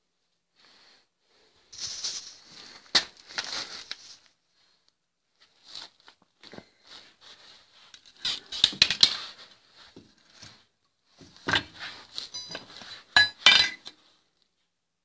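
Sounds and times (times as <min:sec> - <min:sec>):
steel clanking on concrete: 0:12.3 - 0:13.8.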